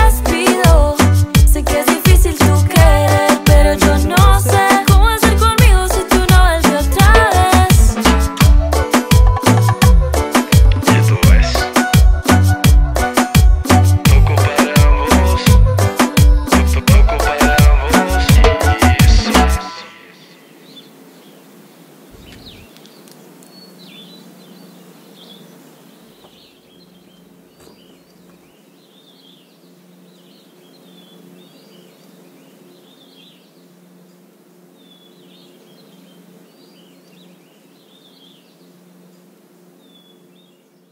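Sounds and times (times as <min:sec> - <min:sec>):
low steady hum: 0:15.6 - 0:40.9
small birds chirping: 0:19.8 - 0:40.9.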